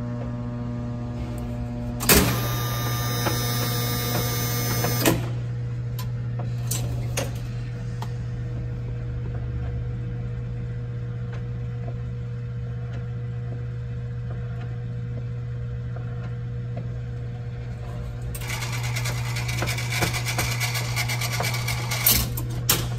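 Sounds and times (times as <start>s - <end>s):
motor humming: 1.2s - 5.5s.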